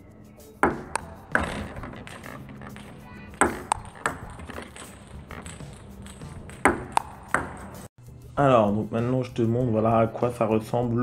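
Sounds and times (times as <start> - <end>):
table tennis ball clicking: 0.6 - 7.9.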